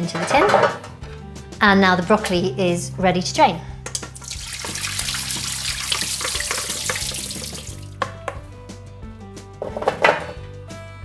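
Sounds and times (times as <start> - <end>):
water poured into sink splashing: 4.2 - 8.0.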